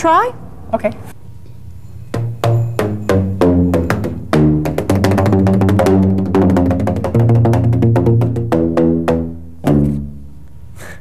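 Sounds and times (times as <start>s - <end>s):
paddle striking tuned metal tubes: 1.9s - 10.3s.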